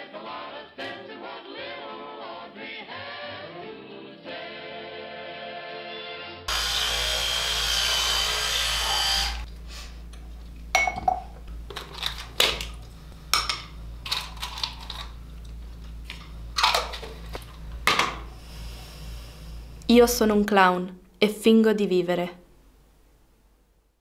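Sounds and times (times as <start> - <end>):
loud whirring noise: 6.5 - 9.9.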